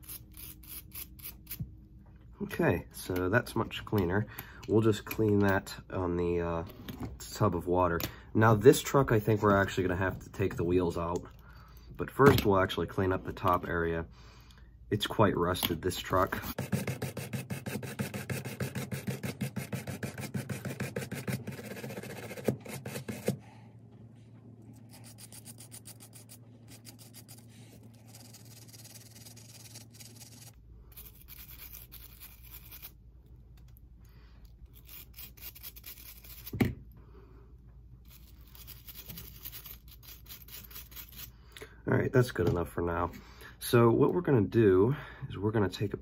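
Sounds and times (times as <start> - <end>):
wire brush scrubbing metal: 24.9 - 32.9.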